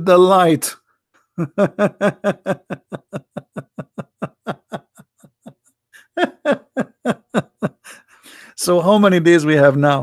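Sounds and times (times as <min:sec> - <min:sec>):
man laughing: 0:01.4 - 0:08.1.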